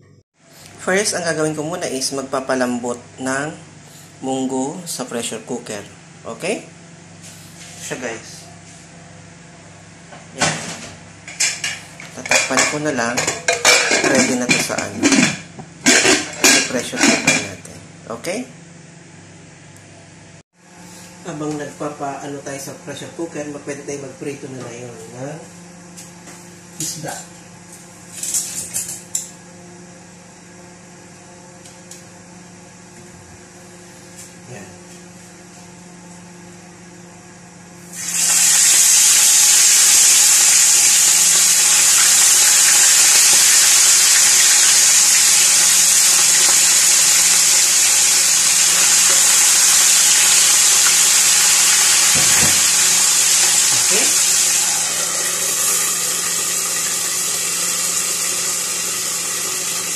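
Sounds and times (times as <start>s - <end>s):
fish sizzling in hot oil: 38.0s - 59.9s.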